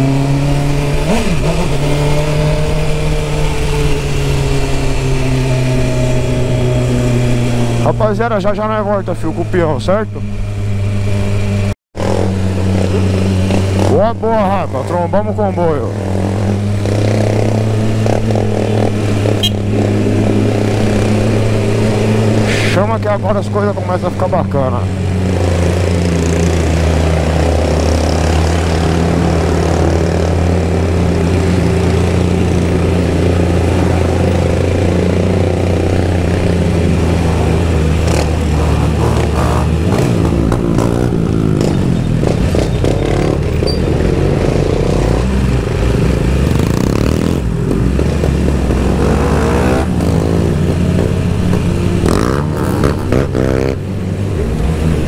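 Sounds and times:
motorcycle engine running: 0.0 - 22.4, 23.1 - 55.0
wind rush: 16.0 - 23.0.

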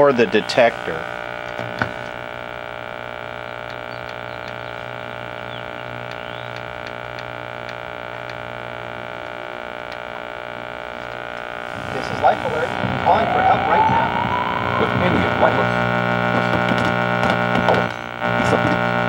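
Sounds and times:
tv loudspeaker buzz: 11.3 - 16.9.

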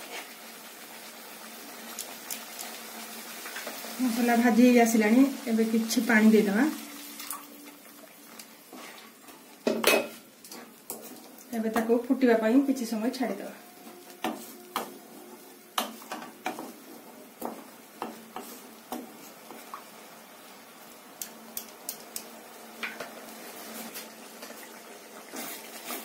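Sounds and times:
spatula scraping pan: 8.6 - 11.3, 13.8 - 16.8, 17.4 - 19.6.

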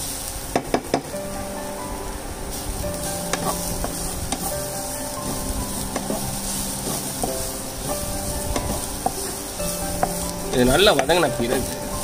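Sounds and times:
onions sizzling in a frying pan: 0.0 - 12.0
spatula scraping a pan: 2.5 - 12.0.

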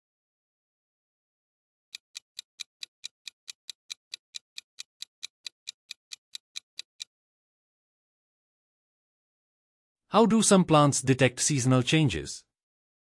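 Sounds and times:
clock-like ticking: 2.0 - 7.1.

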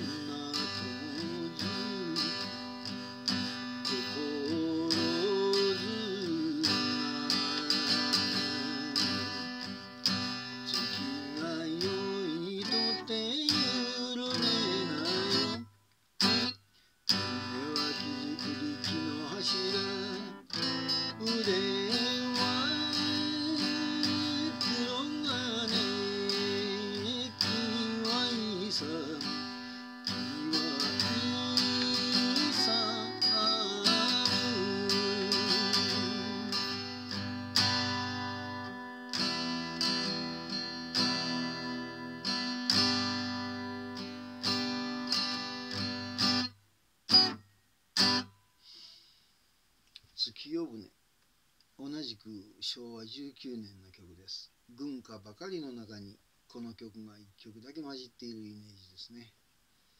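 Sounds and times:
man singing: 0.0 - 2.8, 3.7 - 9.5, 10.5 - 15.6, 17.2 - 38.0
acoustic guitar strumming: 0.0 - 48.8.

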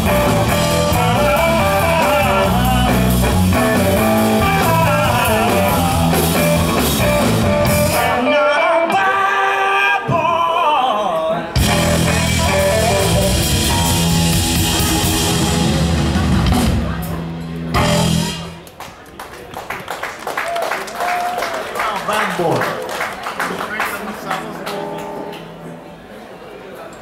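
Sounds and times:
lead electric guitar: 0.0 - 9.8, 11.5 - 18.7
live rock band playing: 0.0 - 10.8, 11.5 - 18.8.

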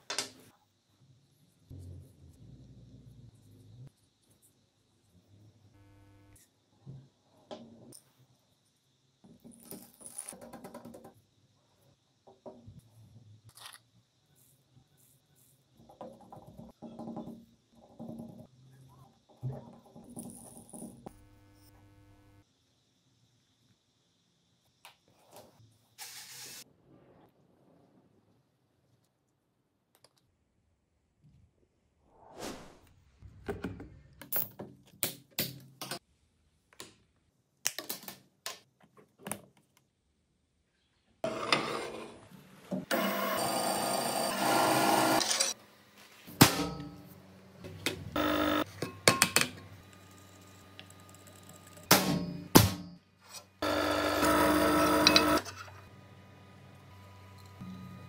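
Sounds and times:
drill press boring through metal: 42.9 - 45.5, 48.2 - 48.6, 53.6 - 55.5
power tool running: 42.9 - 45.5, 48.1 - 48.7, 53.6 - 58.0.

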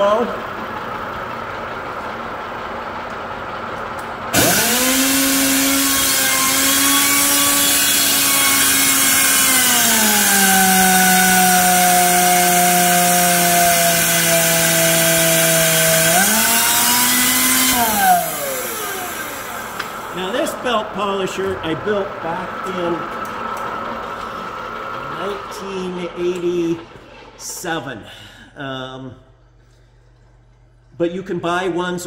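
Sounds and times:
belt polisher motor whine: 4.3 - 25.5.

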